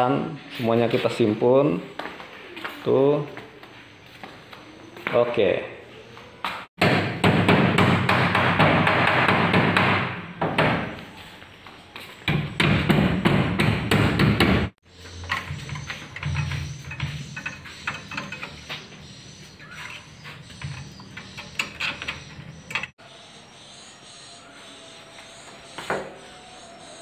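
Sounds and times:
hammering on wooden door: 6.8s - 11.0s, 12.3s - 14.7s.

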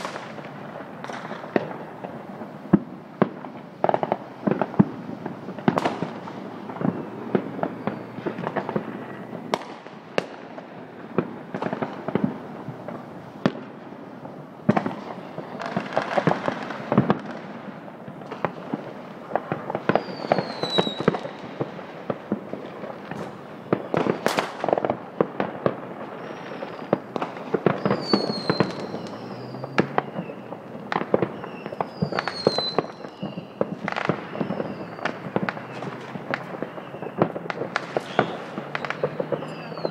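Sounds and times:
falling firework whistles: 0.0s - 13.8s, 19.4s - 22.2s, 26.0s - 39.9s
fireworks bangs and crackling: 0.0s - 39.9s.

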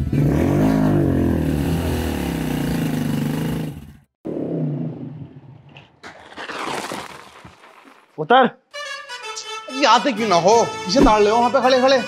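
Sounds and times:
motorcycle engine revving: 0.0s - 5.6s.

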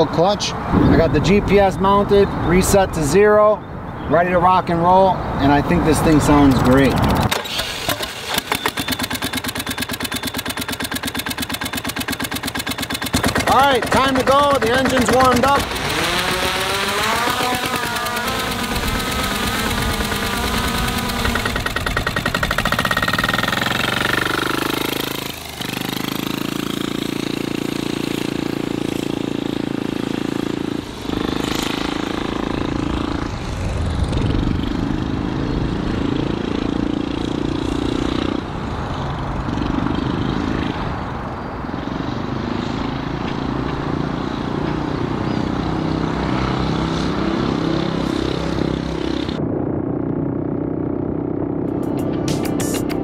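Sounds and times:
go-kart engine running hard: 6.0s - 53.0s.

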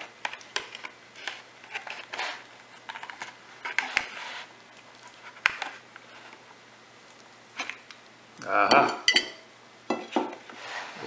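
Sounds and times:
knife scraping foil pan: 1.2s - 4.5s.

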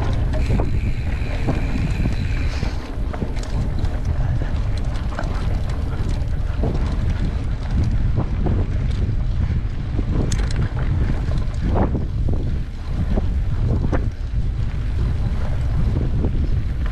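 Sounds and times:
bike clicks and rattles: 0.0s - 16.9s
wind rumbling on microphone: 0.0s - 16.9s
faint high whine: 0.3s - 2.9s.

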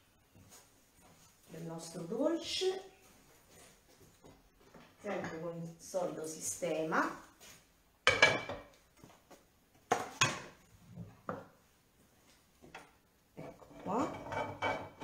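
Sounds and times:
plates clattering on hob: 8.0s - 8.7s, 13.6s - 15.0s.

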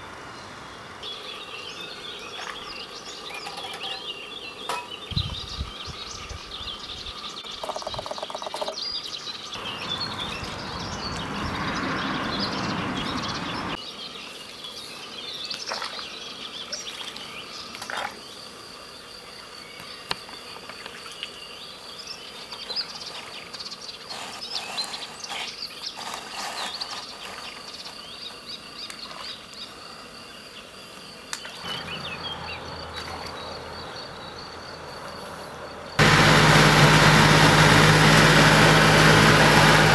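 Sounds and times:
birds chirping: 0.0s - 17.7s, 31.4s - 39.9s
high insect drone: 0.0s - 37.1s
rushing noise: 36.0s - 39.9s.

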